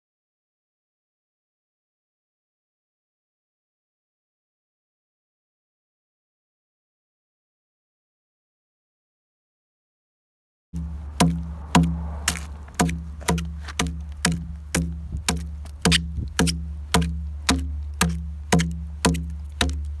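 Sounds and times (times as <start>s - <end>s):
adze hewing into log: 10.8s - 20.0s.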